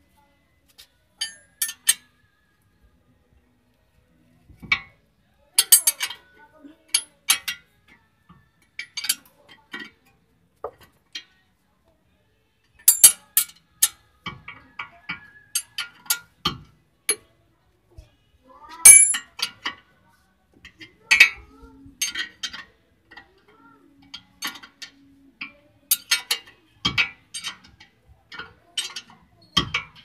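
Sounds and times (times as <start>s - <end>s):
wrench clinking on metal: 1.2s - 2.0s, 5.6s - 6.2s, 12.8s - 14.0s, 18.8s - 19.6s, 25.9s - 30.0s.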